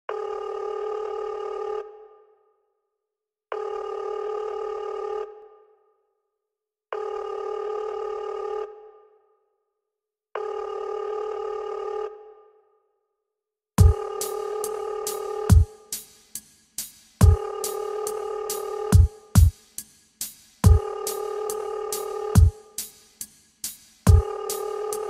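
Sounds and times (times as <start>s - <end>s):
telephone ringing with echo: 24.1s - 25.0s.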